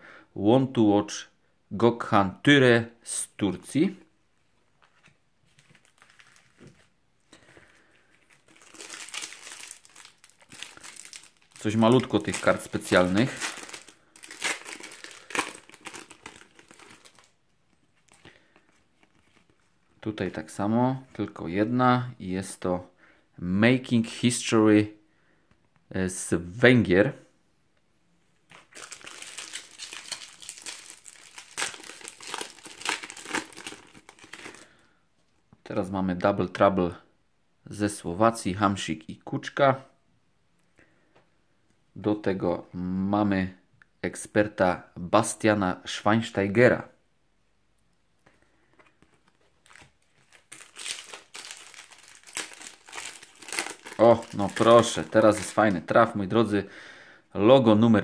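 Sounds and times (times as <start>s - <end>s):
card packet wrapper crinkling and tearing: 4.9s - 6.9s, 7.6s - 19.7s, 28.5s - 34.8s, 48.8s - 56.0s
sharp foil crackles: 5.8s - 6.6s, 8.1s - 17.3s, 28.5s - 34.7s, 49.6s - 55.7s.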